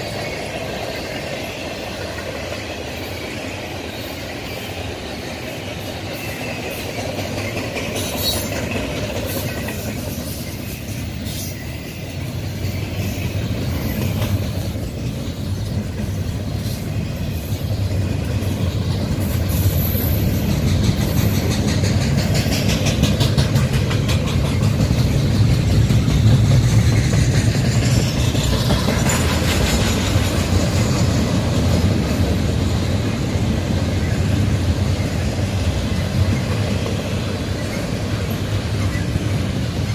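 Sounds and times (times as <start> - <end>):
high wheel squeal: 0.0 - 21.5
steel wheels rumbling on rail: 0.0 - 39.9
wheels clicking over rail joints: 0.0 - 39.9.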